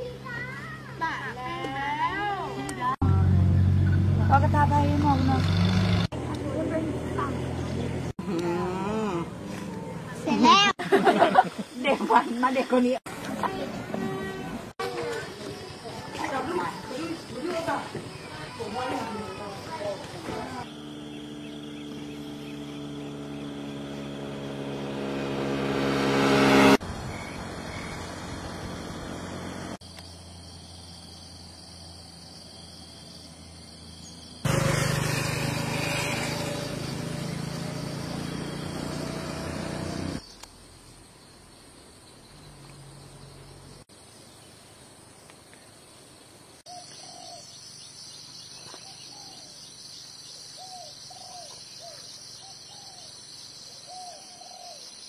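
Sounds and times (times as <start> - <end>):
high insect trill: 26.8 - 55.0
bird calling: 46.7 - 55.0.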